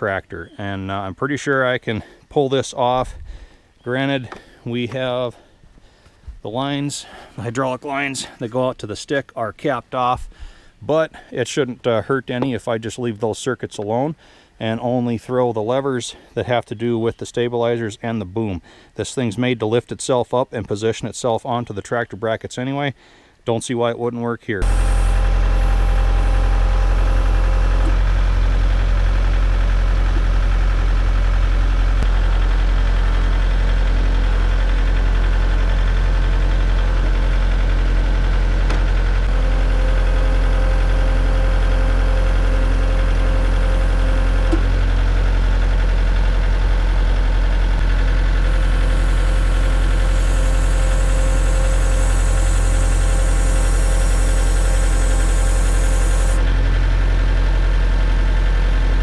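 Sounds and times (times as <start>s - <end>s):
hydraulic whine with hiss: 24.6s - 29.0s, 48.5s - 56.4s
tractor diesel engine running: 24.6s - 59.0s.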